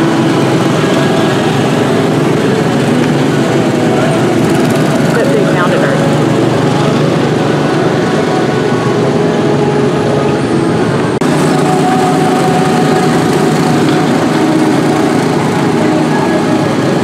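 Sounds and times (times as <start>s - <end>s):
small gasoline engines droning: 0.0s - 17.0s.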